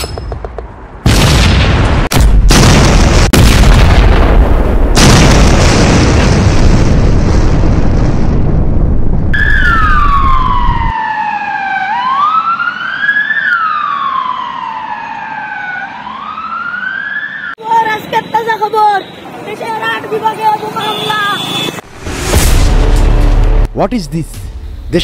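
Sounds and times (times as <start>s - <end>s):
explosion blasts with rumble: 1.0s - 10.9s
emergency siren wailing: 9.4s - 19.3s.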